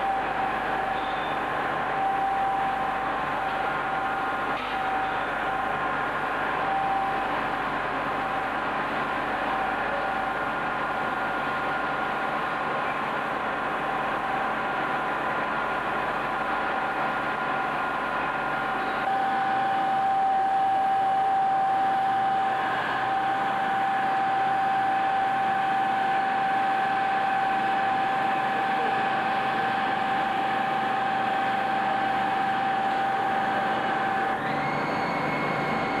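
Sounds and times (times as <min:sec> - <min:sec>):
high machine whine: 0:00.0 - 0:36.0.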